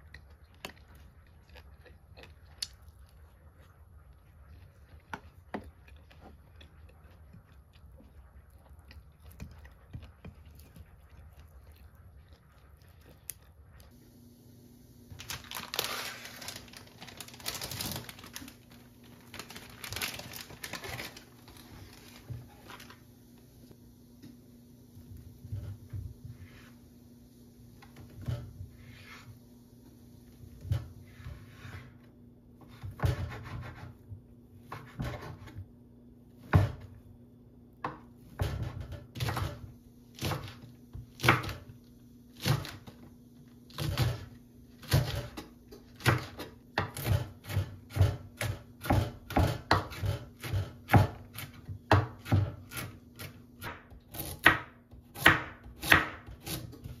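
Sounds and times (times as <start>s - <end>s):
knife chopping on cutting board: 32.7s - 34.0s, 34.7s - 35.6s, 46.0s - 57.0s.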